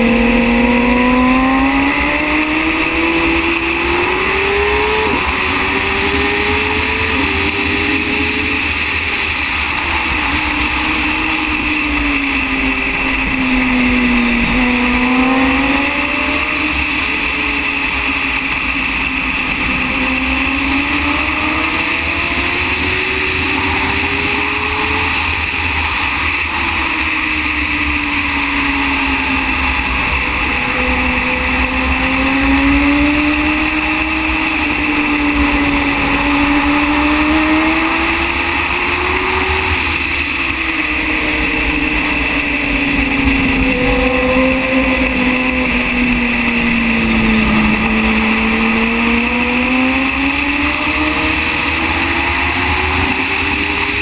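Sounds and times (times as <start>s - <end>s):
racing motorcycle engine: 0.0s - 54.0s
wind noise rushing: 40.8s - 50.4s.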